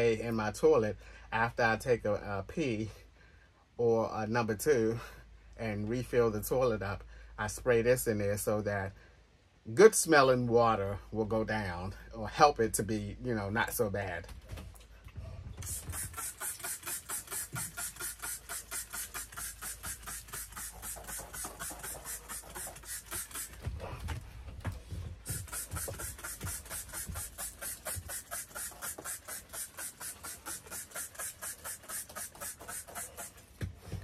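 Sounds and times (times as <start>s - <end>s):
spray bottle squirting: 15.6s - 23.8s, 25.2s - 34.0s.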